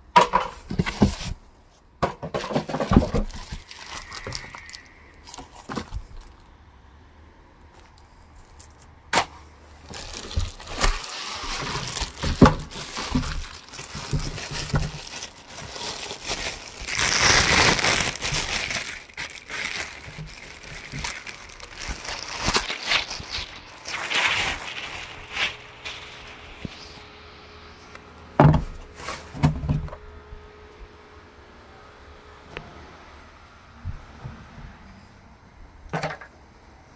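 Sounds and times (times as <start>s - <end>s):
plastic bags crinkling: 2.3s - 6.5s, 7.8s - 9.0s, 9.6s - 27.2s.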